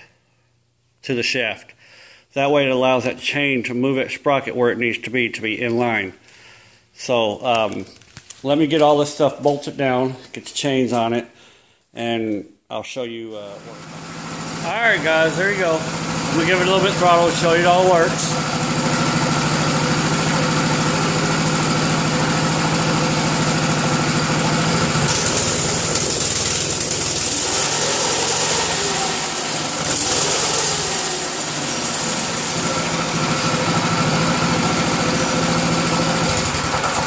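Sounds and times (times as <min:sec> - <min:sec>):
single-cylinder gas engine running: 0:13.5 - 0:37.0.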